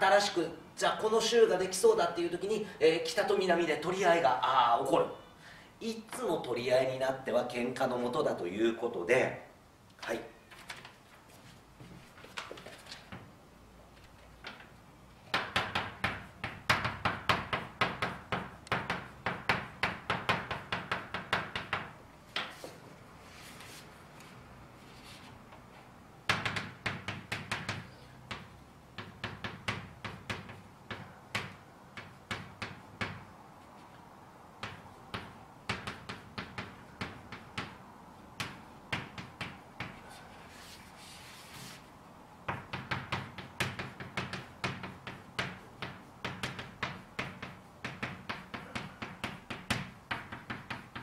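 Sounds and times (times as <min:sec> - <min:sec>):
chalk writing on a blackboard: 0:38.4 - 0:41.9, 0:42.6 - 0:51.0.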